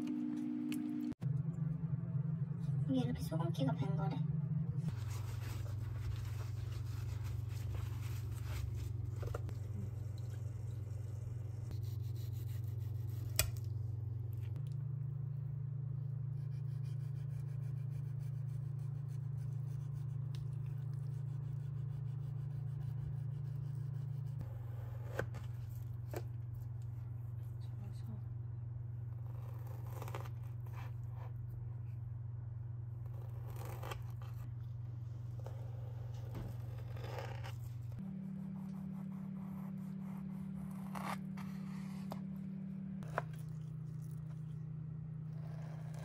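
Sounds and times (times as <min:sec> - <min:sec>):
steady low hum: 0:00.0 - 0:46.0
gloved hands rubbing paper towel: 0:04.9 - 0:09.7.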